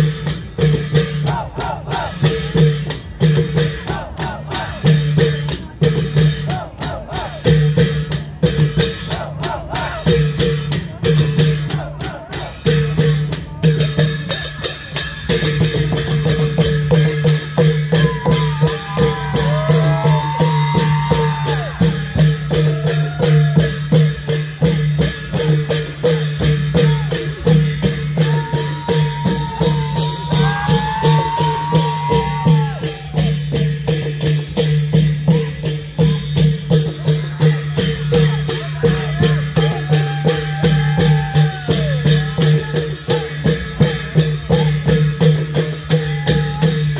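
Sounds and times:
long drums beating fast rhythm: 0.0s - 46.9s.

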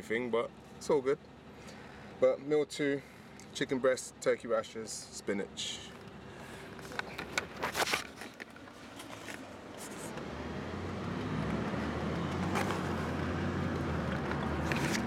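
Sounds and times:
car engine and road hum: 0.0s - 15.0s
clicks and rustles of handling: 6.0s - 10.2s, 13.8s - 15.0s.

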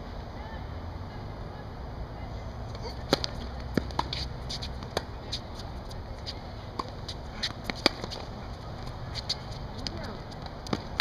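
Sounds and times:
tennis ball bouncing: 2.7s - 11.0s
racket hitting tennis ball: 2.8s - 11.0s
shoes scuffing on court: 3.1s - 10.9s.

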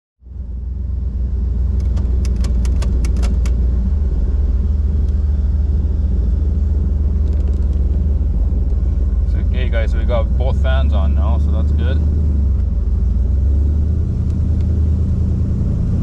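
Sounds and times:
car engine idling: 0.2s - 16.0s
sharp clicks: 1.8s - 3.6s.

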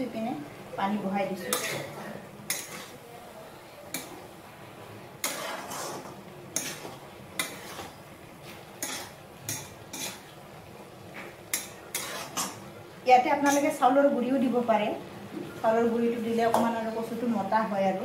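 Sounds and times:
vegetables stir-frying: 0.0s - 18.0s
spatula scraping metal wok: 1.4s - 3.0s, 5.2s - 10.6s, 11.4s - 12.6s.

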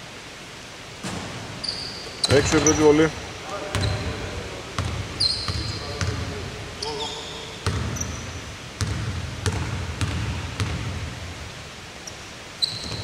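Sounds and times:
short high squeak: 1.6s - 2.8s, 5.2s - 5.8s, 12.6s - 13.0s
basketball bouncing on court: 3.7s - 6.4s, 7.6s - 11.1s, 12.7s - 13.0s.

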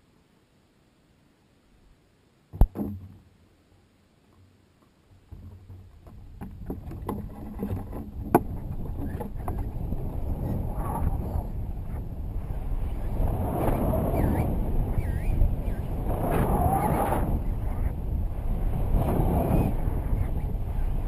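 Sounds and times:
knocks and rattles: 5.3s - 9.8s
rushing wind: 5.3s - 21.0s.

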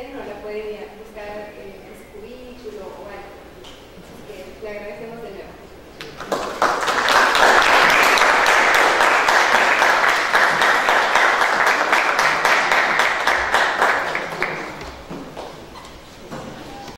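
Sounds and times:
audience applauding: 6.0s - 15.5s.

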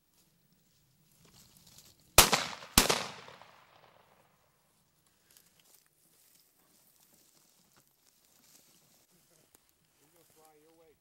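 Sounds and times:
shotgun shots: 2.2s - 4.1s
gunshot echo: 2.2s - 4.2s.

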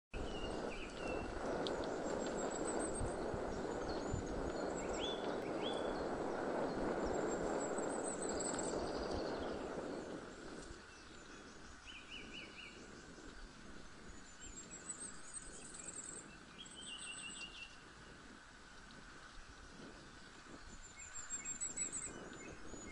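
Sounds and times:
steady rushing noise: 0.2s - 16.6s
songbirds singing: 0.2s - 18.2s, 19.4s - 22.9s.

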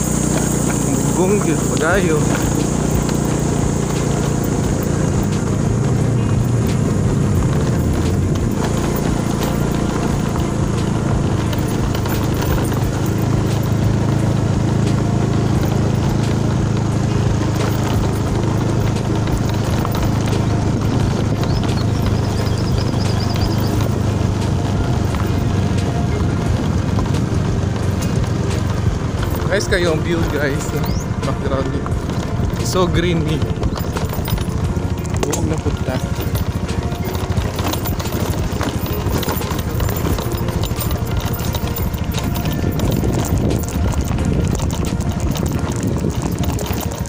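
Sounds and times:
footsteps on dirt road: 0.0s - 47.0s
small motorcycle engine running: 0.0s - 47.0s
wind buffeting microphone: 0.0s - 47.0s
knocks and rattles from jolting: 0.1s - 47.0s.

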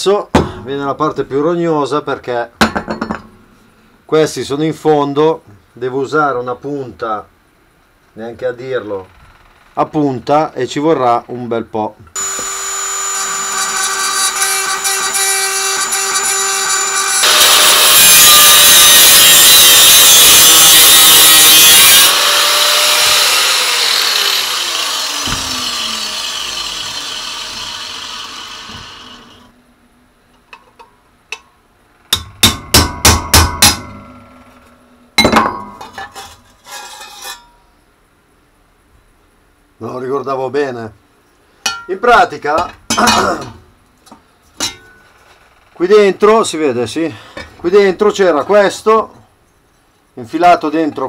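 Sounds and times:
rotary tool grinding metal: 12.2s - 29.5s
rotary tool whine: 12.2s - 29.5s.

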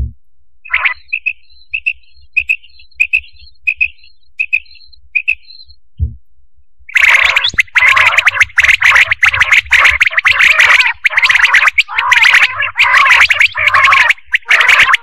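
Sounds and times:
quail calling: 0.7s - 5.7s, 6.9s - 15.0s
low thump: 6.0s - 6.2s.

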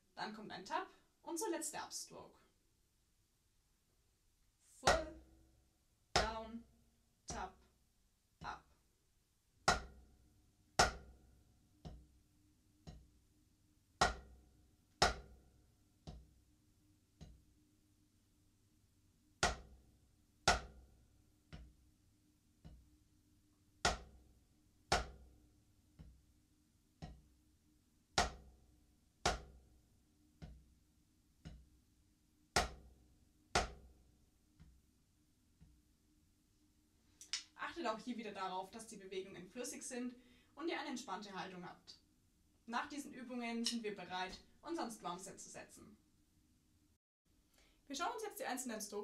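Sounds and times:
drumsticks striking practice pad: 9.7s - 10.0s, 10.8s - 11.1s, 14.0s - 14.3s, 15.0s - 15.3s, 19.4s - 19.7s, 20.5s - 20.8s, 23.9s - 24.2s, 24.9s - 25.2s, 28.2s - 28.5s, 29.3s - 29.6s, 32.6s - 32.9s, 33.6s - 33.9s.

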